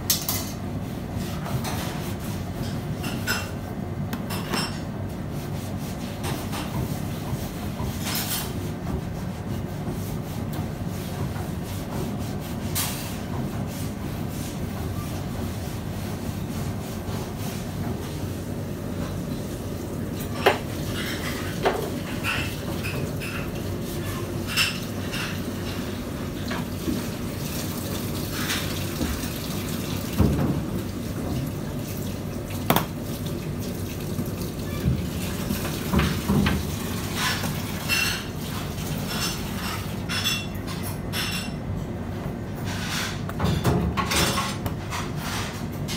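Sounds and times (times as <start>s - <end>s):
plates and utensils clinking: 20.3s - 25.8s, 37.2s - 41.6s
running water: 26.4s - 39.7s.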